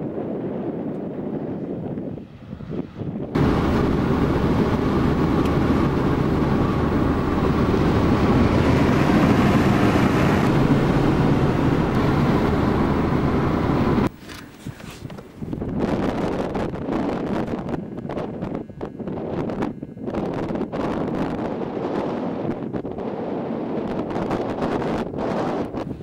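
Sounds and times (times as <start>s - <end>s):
car engine and road noise: 1.8s - 16.1s.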